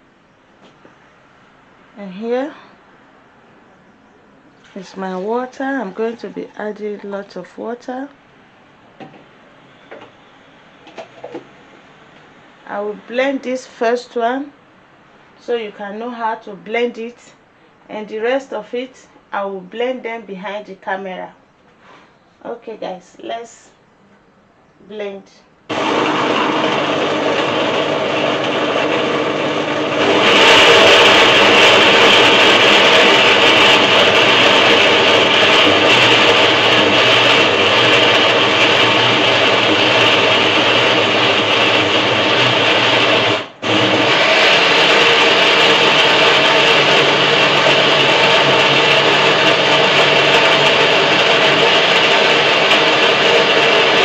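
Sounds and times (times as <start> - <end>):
blender motor whirring: 25.7 - 54.0.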